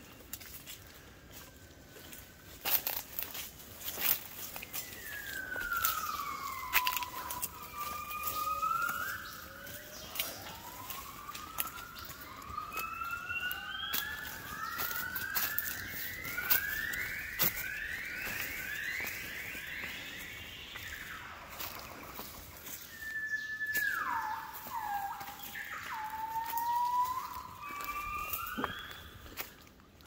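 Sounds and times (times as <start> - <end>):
footsteps on forest litter: 0.0 - 30.0
gibbon singing: 5.3 - 18.4.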